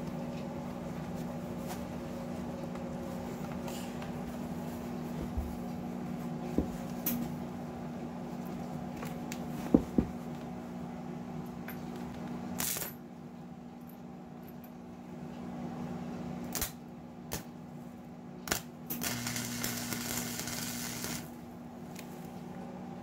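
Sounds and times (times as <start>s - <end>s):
welding arc crackling: 12.6s - 12.9s, 16.5s - 17.4s, 18.4s - 21.4s
welder low hum: 18.4s - 21.6s.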